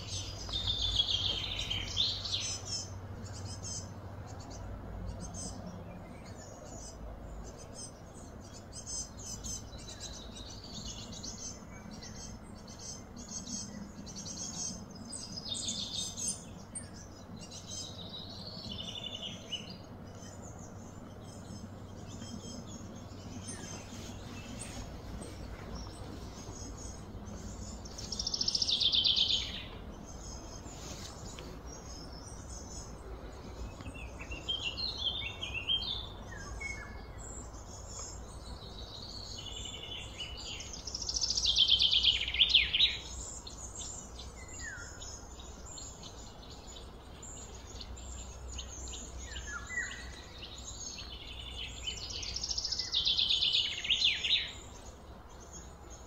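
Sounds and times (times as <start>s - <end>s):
steady low rumble: 0.0s - 41.1s
birds singing: 0.0s - 56.0s.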